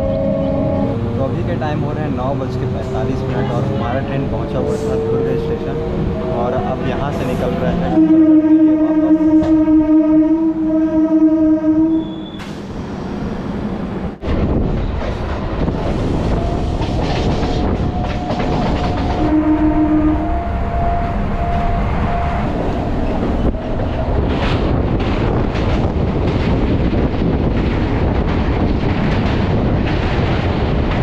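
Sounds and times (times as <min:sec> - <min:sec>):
train horn blast: 0:00.0 - 0:01.1, 0:07.6 - 0:12.4, 0:19.1 - 0:22.6
train rumbling and clattering: 0:00.0 - 0:31.0.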